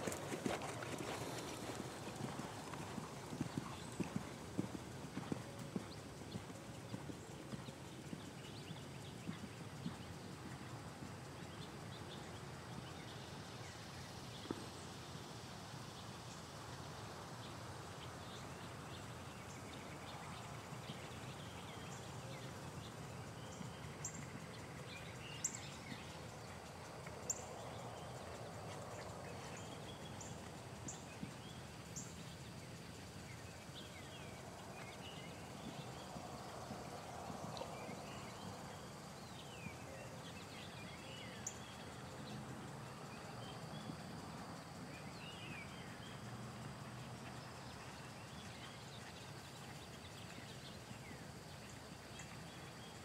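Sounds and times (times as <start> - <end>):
horse hoofbeats on sand: 0.0 - 11.6, 34.5 - 39.4
outdoor background noise: 0.0 - 53.0.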